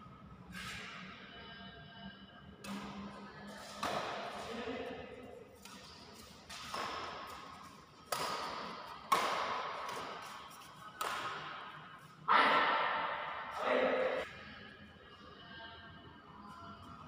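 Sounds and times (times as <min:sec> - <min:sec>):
racket hitting shuttlecock: 0:02.6 - 0:05.0, 0:05.6 - 0:14.3.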